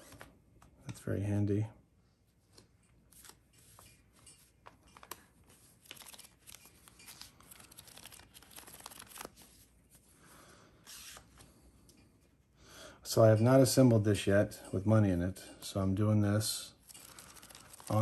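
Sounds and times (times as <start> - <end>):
banknotes rustling and flicking: 2.4 - 10.1, 16.4 - 18.0.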